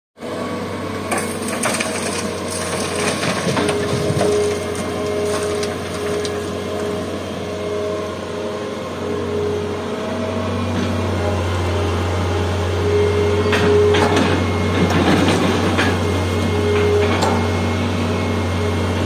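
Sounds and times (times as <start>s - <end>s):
excavator diesel engine under load: 0.2s - 19.0s
soil pouring into metal truck bed: 1.1s - 6.6s.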